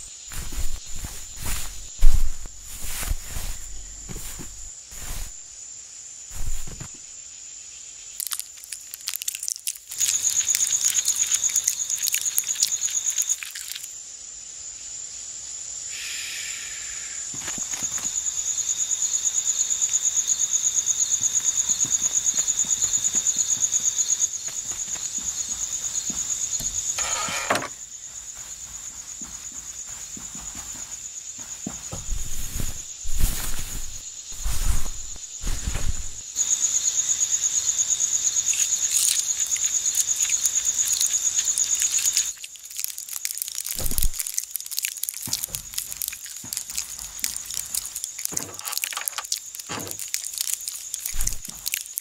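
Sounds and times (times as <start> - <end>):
crickets chirping: 0.0 - 52.0
short squeaks: 27.0 - 27.8.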